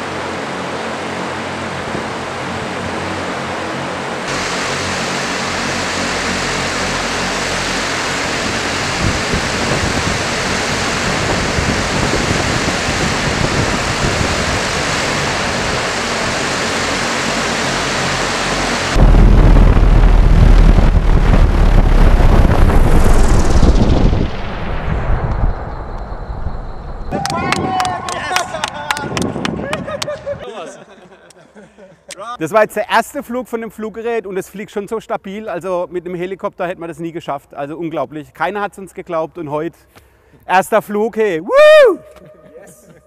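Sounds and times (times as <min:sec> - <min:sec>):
loud low rumble with buffeting: 0:00.0 - 0:30.5
electric rotors whooshing: 0:00.3 - 0:27.1.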